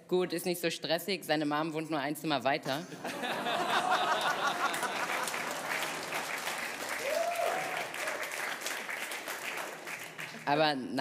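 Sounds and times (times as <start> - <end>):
audience laughing: 3.0 - 6.1
audience applauding: 3.5 - 10.5.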